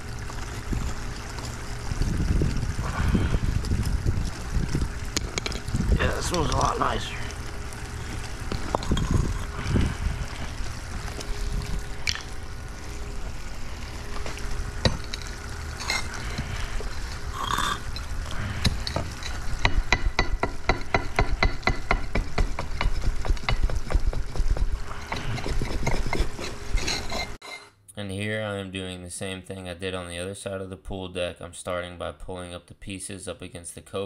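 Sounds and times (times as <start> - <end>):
metal scraper scraping stone: 18.6 - 27.7.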